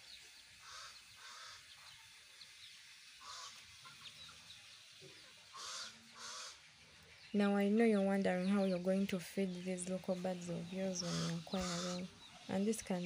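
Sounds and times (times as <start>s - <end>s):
short bird calls: 3.2s - 6.7s
chicks peeping: 8.0s - 13.0s.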